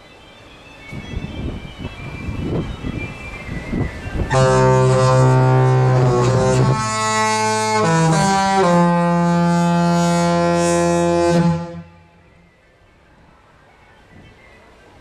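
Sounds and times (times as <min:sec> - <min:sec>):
ship horn playing a tune: 0:04.2 - 0:12.5.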